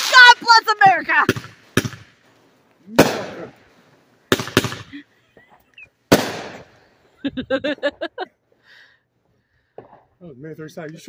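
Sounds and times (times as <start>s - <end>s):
fireworks bursting with echo: 0.0s - 7.0s.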